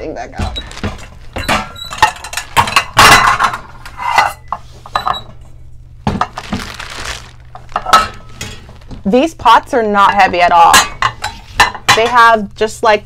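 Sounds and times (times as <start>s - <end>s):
plastic wrapping crinkling: 0.4s - 3.6s, 6.0s - 9.2s
metal pots and pans clanking: 0.4s - 5.4s, 7.6s - 8.8s, 10.0s - 12.3s.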